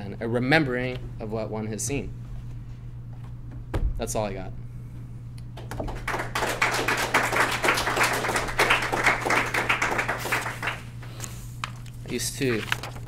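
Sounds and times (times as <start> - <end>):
audience applauding: 5.6 - 11.0.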